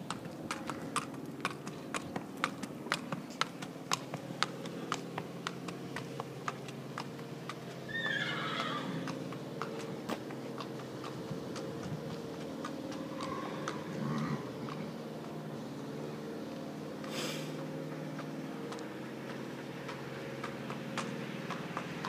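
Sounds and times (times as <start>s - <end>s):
hooves clip-clopping on tarmac: 0.0s - 22.0s
horse whinnying: 7.9s - 9.1s.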